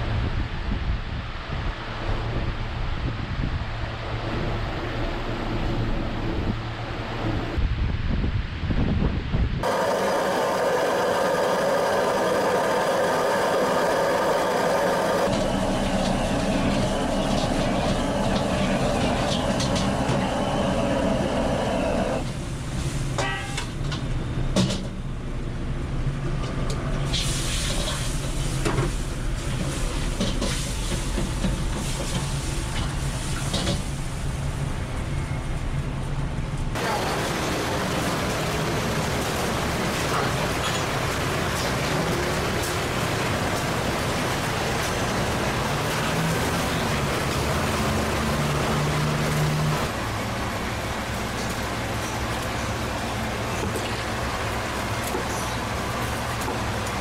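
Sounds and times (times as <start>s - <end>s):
kitchen whirring and hiss: 9.6s - 23.2s, 26.6s - 34.6s, 36.8s - 57.0s.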